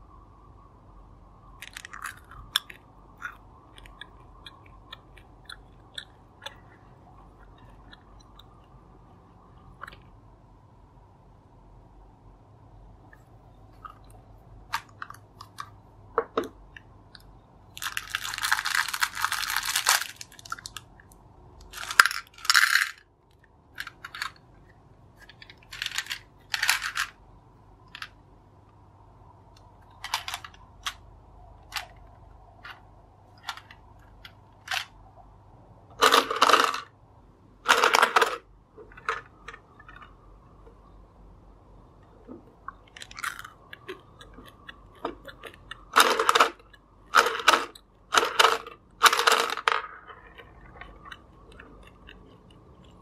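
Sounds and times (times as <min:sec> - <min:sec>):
candies rattling inside machine: 0:17.8 - 0:20.9, 0:21.6 - 0:23.0, 0:25.3 - 0:27.2, 0:36.0 - 0:36.9, 0:37.7 - 0:38.4, 0:45.4 - 0:49.9.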